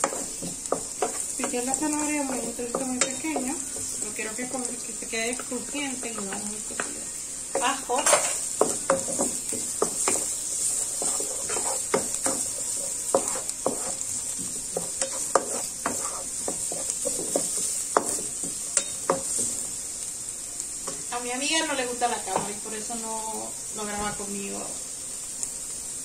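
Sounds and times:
wooden spatula scraping pan: 0.0s - 4.6s, 5.3s - 19.7s
vegetables sizzling in oil: 0.0s - 26.0s.

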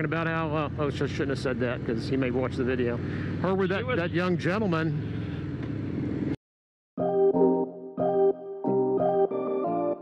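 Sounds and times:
repeating struck chords: 7.0s - 10.0s.

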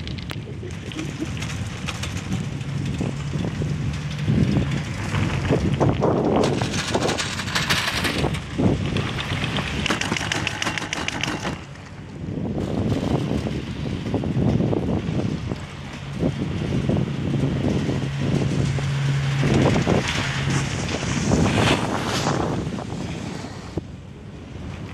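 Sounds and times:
chairlift rollers clattering: 0.0s - 23.8s
wind on microphone: 0.0s - 24.9s.

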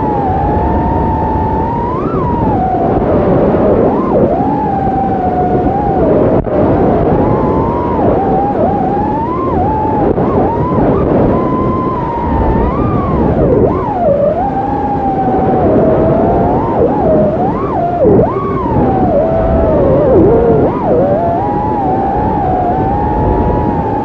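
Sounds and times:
quadcopter motors whining: 7.4s - 24.0s.

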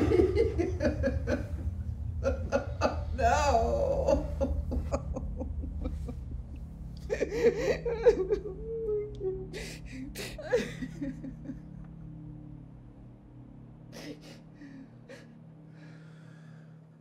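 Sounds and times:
woman sobbing: 0.0s - 11.9s, 14.0s - 15.4s.

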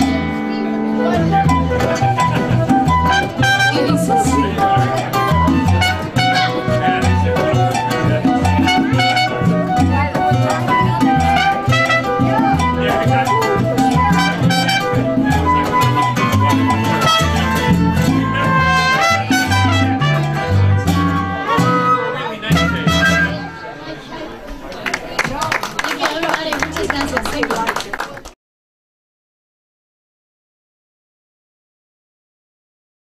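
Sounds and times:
trumpet: 0.0s - 23.7s
guitar: 0.0s - 24.8s
flute: 0.3s - 24.0s
repeating bass line: 1.1s - 23.5s.

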